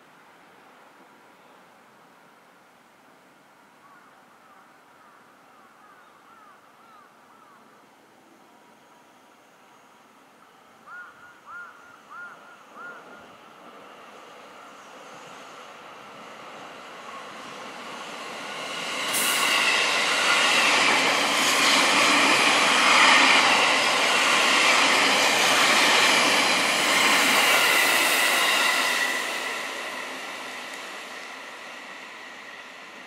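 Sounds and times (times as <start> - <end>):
high whine of train: 0.0 - 33.0
train wheels rushing on rails: 12.8 - 33.0.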